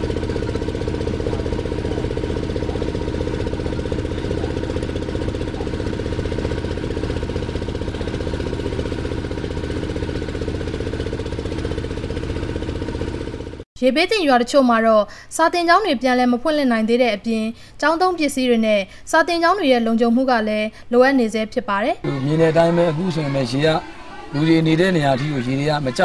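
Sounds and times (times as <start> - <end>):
boat engine chugging: 0.0 - 13.6, 22.1 - 26.0.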